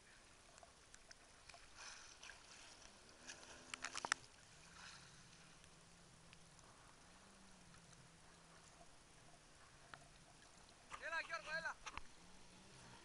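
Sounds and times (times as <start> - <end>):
water lapping and splashing: 0.0 - 13.0
distant jet ski engine drone: 2.9 - 13.0.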